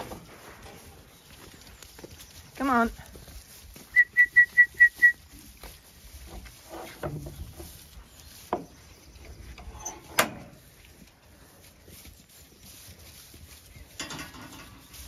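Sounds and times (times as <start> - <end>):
sheep shuffling in straw: 0.0 - 15.0
short high whistle pips: 3.9 - 5.2.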